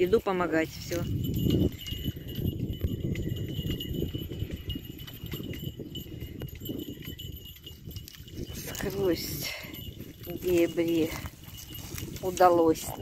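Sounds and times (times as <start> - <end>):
footsteps crunching through dry reeds: 10.4 - 13.0.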